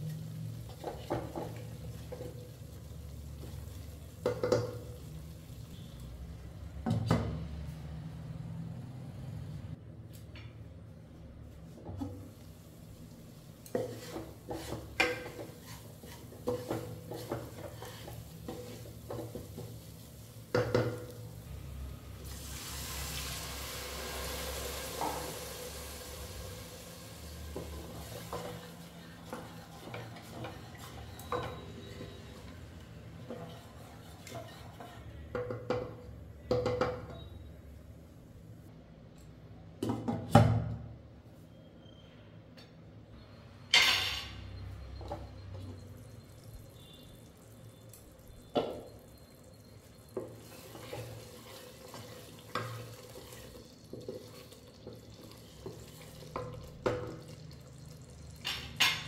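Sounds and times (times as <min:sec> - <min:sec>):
sizzling: 0:00.0 - 0:06.4, 0:12.2 - 0:35.1, 0:43.9 - 0:59.0
spoon stirring in a pan: 0:13.6 - 0:21.2, 0:27.4 - 0:36.0, 0:49.6 - 0:59.0.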